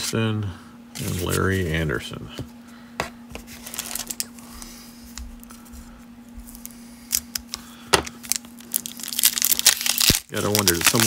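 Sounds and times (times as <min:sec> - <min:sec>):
faint steady hum: 0:00.0 - 0:11.0
plastic wrapper crackling: 0:03.6 - 0:04.4, 0:06.5 - 0:11.0.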